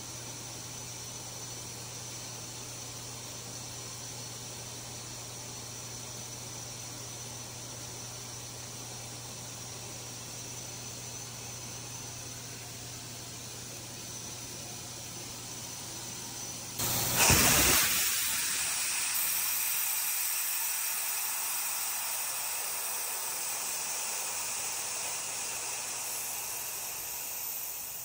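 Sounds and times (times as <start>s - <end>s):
loud blast of escaping air: 16.8s - 22.6s
steady hiss of air: 16.8s - 28.0s.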